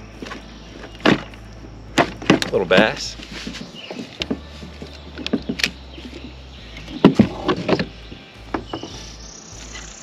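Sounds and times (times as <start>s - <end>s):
gear knocking against kayak hull: 0.2s - 9.1s.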